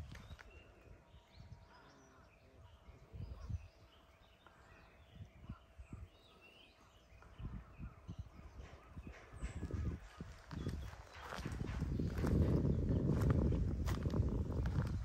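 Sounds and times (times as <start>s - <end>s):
faint bird chirps: 0.0s - 13.1s
soft low thumps: 8.6s - 15.0s.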